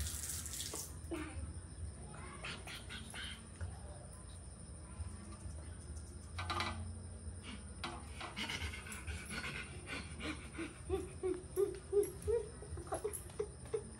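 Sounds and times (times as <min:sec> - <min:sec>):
woman cooing rhythmically: 0:10.1 - 0:13.9.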